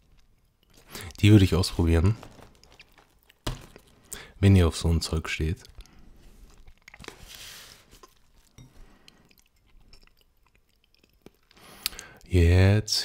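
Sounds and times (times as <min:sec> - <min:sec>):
chewing and mouth sounds: 0:00.0 - 0:01.2, 0:02.2 - 0:04.3, 0:05.6 - 0:12.3.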